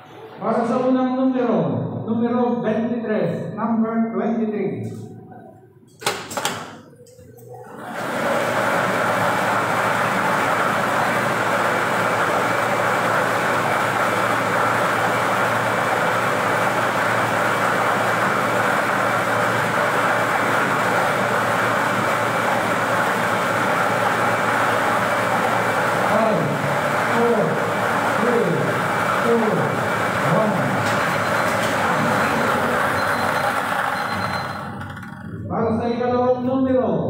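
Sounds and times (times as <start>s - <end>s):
blower running loudly: 7.7s - 35.7s.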